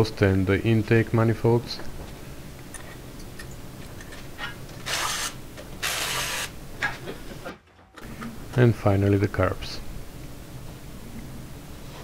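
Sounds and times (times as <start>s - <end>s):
pneumatic tool air hiss: 4.9s - 6.5s.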